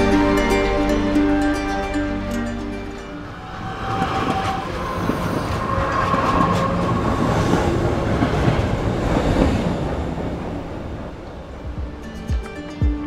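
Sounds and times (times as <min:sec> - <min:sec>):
train wheels rattling on rails: 0:03.3 - 0:11.8.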